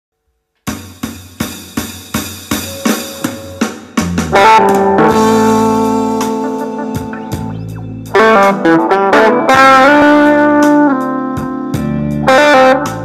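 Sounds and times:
steady drum beat: 0:00.7 - 0:08.6
electric guitar blues run: 0:02.5 - 0:13.0.

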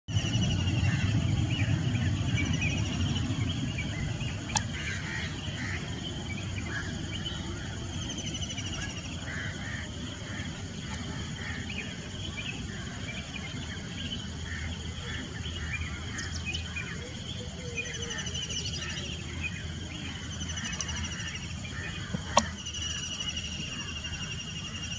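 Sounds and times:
low rumble: 0:00.1 - 0:14.8
crickets trilling: 0:00.1 - 0:24.9
insect chirps: 0:00.1 - 0:24.9
sharp click: 0:22.2 - 0:22.6.

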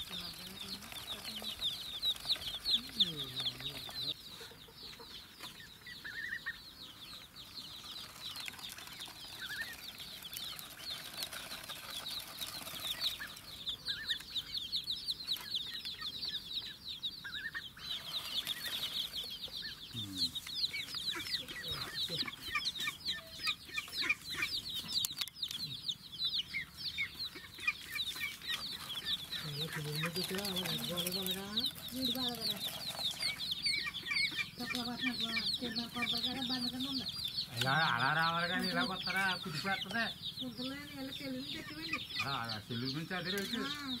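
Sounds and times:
chicks peeping: 0:00.0 - 0:44.0.

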